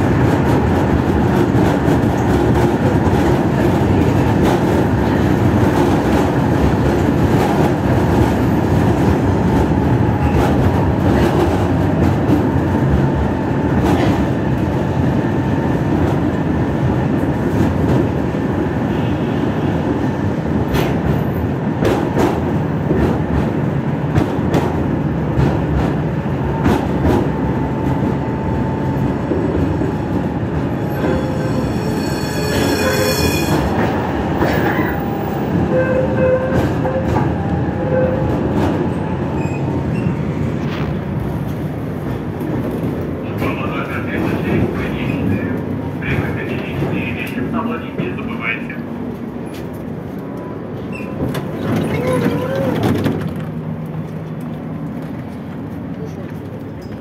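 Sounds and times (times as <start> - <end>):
tram rolling rumble: 0.0 - 57.0
high ringing squeal: 30.8 - 34.1.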